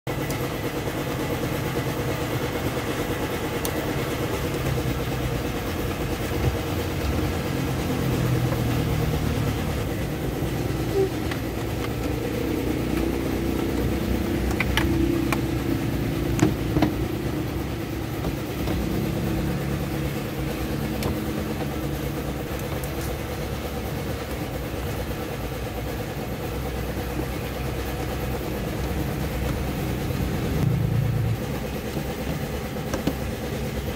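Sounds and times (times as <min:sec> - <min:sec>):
low mechanical rumble: 0:00.1 - 0:33.9
plastic parts clicking and knocking: 0:12.9 - 0:15.6.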